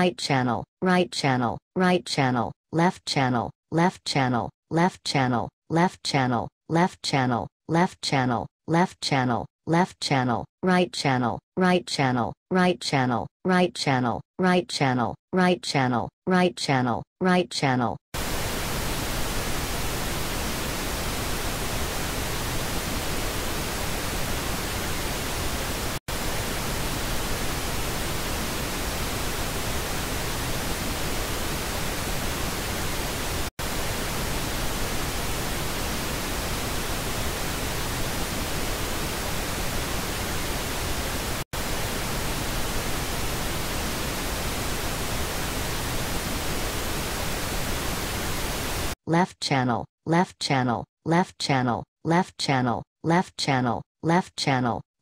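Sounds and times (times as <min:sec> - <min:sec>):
pink noise hiss: 0:18.2 - 0:49.0.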